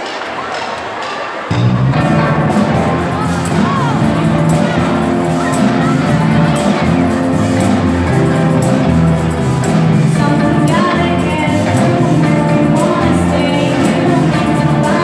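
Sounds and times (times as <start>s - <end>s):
drums: 0.0s - 15.0s
electric guitar: 1.5s - 15.0s
group of singers: 10.1s - 15.0s.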